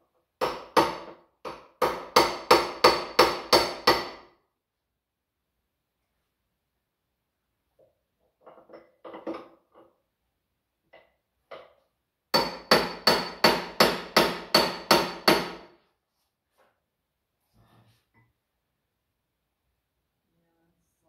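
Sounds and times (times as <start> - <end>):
hammer striking metal: 12.3 - 15.7.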